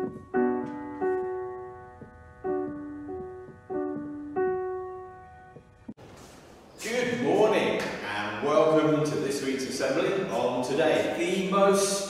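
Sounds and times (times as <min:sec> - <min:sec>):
piano notes and chords: 0:00.0 - 0:06.1.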